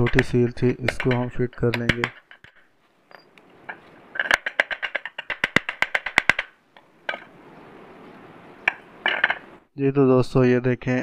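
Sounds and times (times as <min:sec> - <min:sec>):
hammer tapping on metal: 0:00.0 - 0:07.4.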